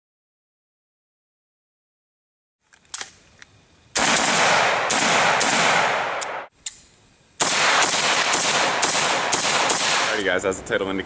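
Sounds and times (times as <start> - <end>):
rifle shots with echo: 4.0 - 6.5, 7.4 - 10.3.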